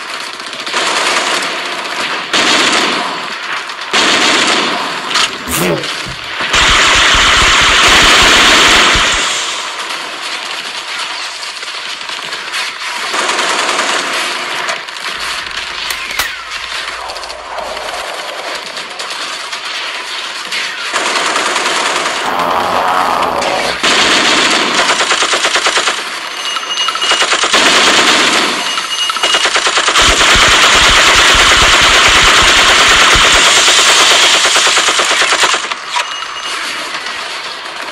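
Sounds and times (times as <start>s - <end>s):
machine-gun fire: 0.0s - 22.3s, 23.8s - 26.3s, 27.0s - 35.9s
rapid gunfire: 0.0s - 22.5s, 23.8s - 35.9s
roaring hiss: 22.2s - 23.8s.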